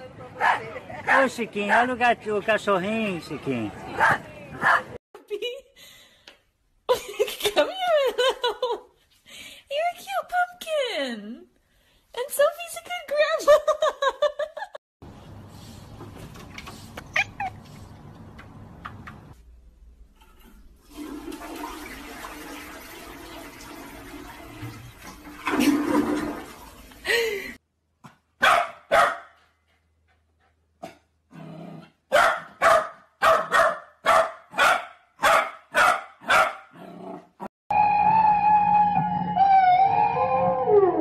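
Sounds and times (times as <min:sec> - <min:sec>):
toilet flushing: 0:20.2 - 0:27.3
puppy barking in sharp yaps: 0:28.4 - 0:29.4, 0:32.1 - 0:36.7.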